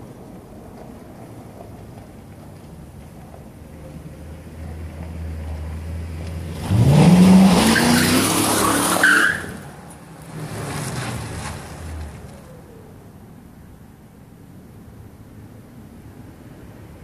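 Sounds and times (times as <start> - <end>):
tire chirp: 0.0 - 13.1
car accelerating past: 4.6 - 12.5.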